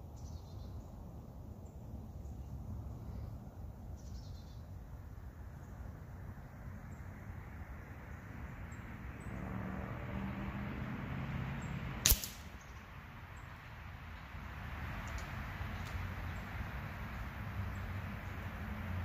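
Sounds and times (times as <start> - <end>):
air rifle shot: 12.0 - 12.6.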